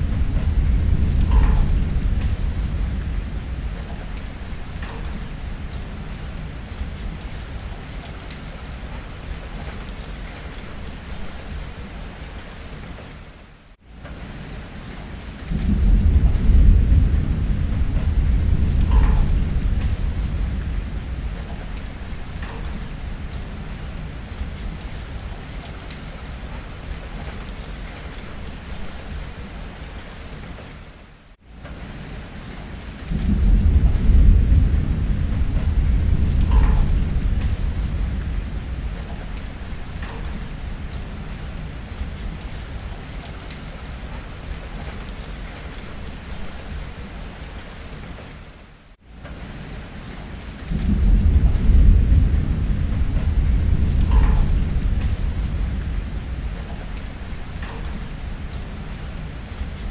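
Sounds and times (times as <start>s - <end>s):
low rumble: 0.0s - 7.8s, 15.5s - 25.4s, 33.1s - 43.0s, 50.7s - 59.9s
heavy rain: 0.0s - 59.9s.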